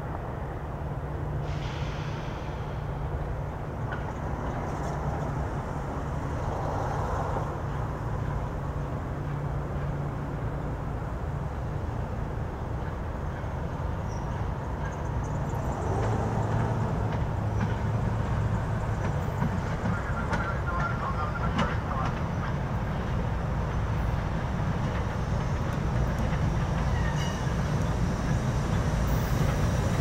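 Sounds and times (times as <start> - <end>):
electric train low hum: 0.0 - 30.0
train clicks: 3.8 - 5.7, 12.7 - 30.0.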